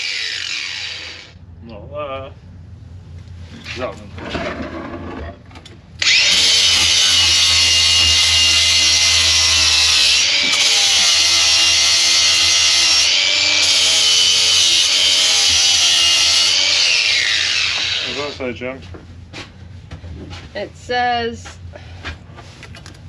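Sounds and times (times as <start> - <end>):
angle grinder grinding: 0.0 - 1.4, 6.0 - 18.4.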